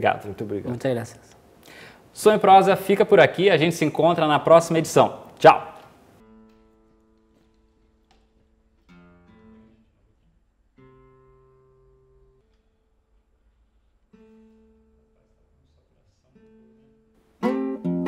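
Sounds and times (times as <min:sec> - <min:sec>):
classical guitar chords: 0:06.2 - 0:12.6, 0:14.1 - 0:15.1, 0:16.4 - 0:18.0.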